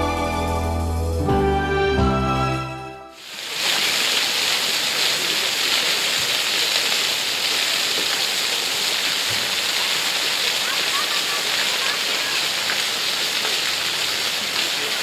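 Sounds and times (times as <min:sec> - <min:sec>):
music: 0:00.0 - 0:03.2
fountain water splashing: 0:03.2 - 0:15.0.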